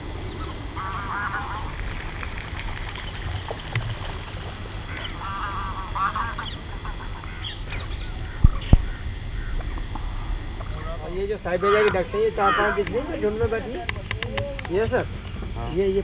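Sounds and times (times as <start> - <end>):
waterfowl honking: 0.0 - 2.3, 4.0 - 9.6, 10.8 - 13.1
steady low rumble: 0.0 - 16.0.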